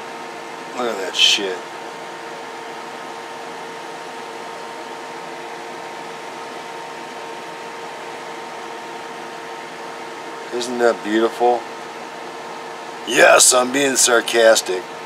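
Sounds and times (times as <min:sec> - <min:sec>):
faint steady hum: 0:00.0 - 0:15.0
steady background hiss: 0:13.0 - 0:14.8.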